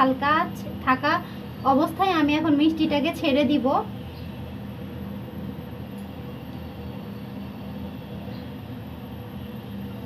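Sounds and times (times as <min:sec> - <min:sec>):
faint hum: 0:00.0 - 0:10.0
gas burner rumble: 0:00.0 - 0:10.0.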